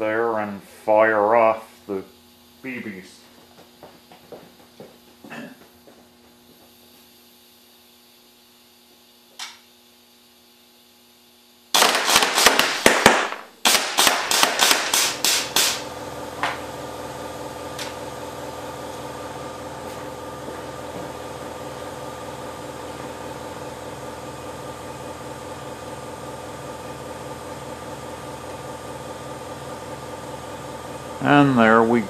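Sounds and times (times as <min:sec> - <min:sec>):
steady machine hum: 0:00.0 - 0:32.0
air cannon firing sharp cracks: 0:11.8 - 0:15.8.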